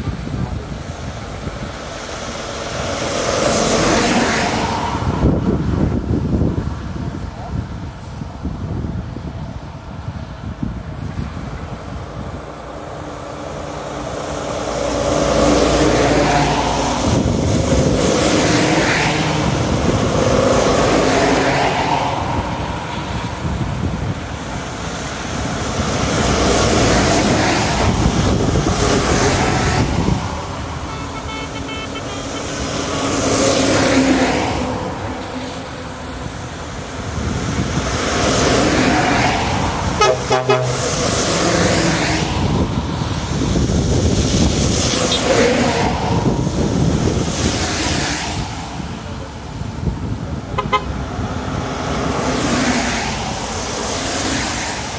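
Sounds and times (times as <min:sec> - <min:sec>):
lorries driving past: 0:00.0 - 0:54.9
tyres hissing on wet road: 0:00.0 - 0:54.9
vehicle horn toots: 0:30.8 - 0:32.9, 0:40.0 - 0:41.0, 0:50.5 - 0:51.1.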